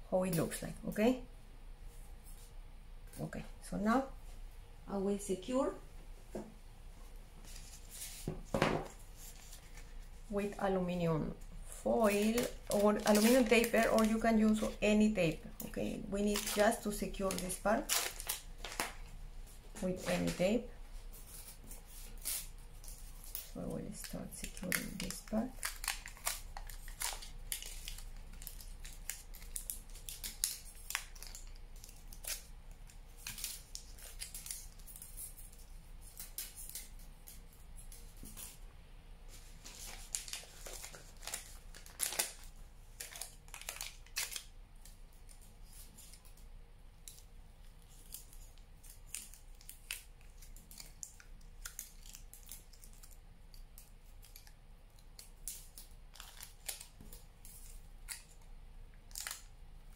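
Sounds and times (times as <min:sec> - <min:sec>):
aluminium foil crinkling: 0:11.6 - 0:19.2, 0:19.8 - 0:38.6, 0:39.3 - 0:59.9.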